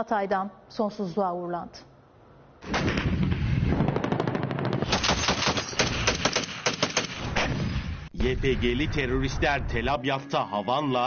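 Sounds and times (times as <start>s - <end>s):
automatic weapons fire: 2.6s - 7.8s.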